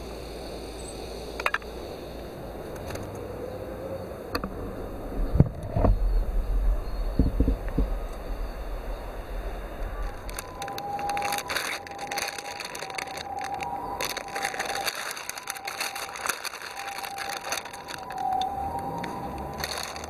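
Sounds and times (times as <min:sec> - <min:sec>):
plastic wrapper crinkling: 0:09.2 - 0:20.0.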